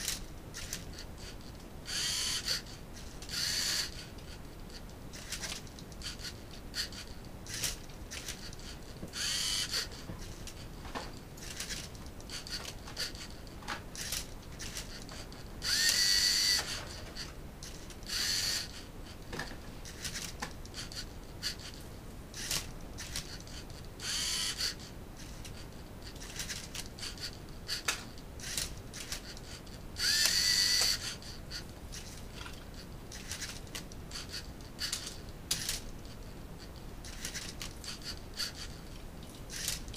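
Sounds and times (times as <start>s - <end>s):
electric motors whirring: 0.0s - 39.9s
plastic clicks and clacks: 24.5s - 31.2s, 32.0s - 39.9s.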